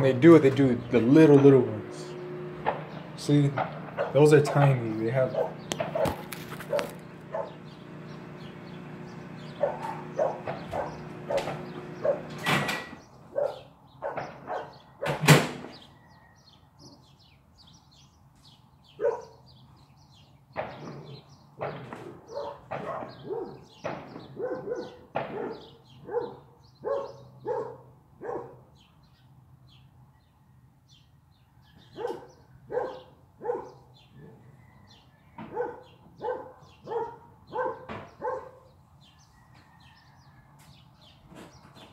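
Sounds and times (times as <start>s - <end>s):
steady hum: 0.1s - 12.6s
dog barking: 3.9s - 4.2s, 5.2s - 7.6s, 9.5s - 12.4s, 13.3s - 14.8s, 19.0s - 19.4s, 22.2s - 23.7s, 24.3s - 28.7s, 31.9s - 34.4s, 35.4s - 38.7s.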